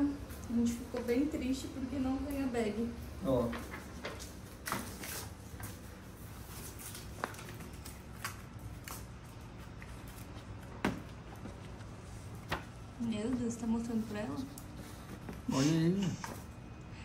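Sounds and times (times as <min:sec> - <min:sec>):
paper crackling and rustling: 0:03.3 - 0:12.7.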